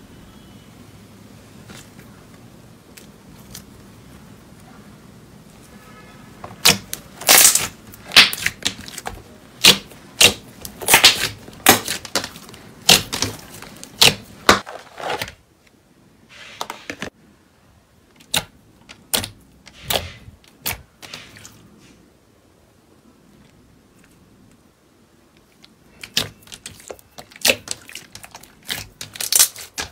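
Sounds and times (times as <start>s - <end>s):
slime popping and clicking: 18.2s - 20.8s.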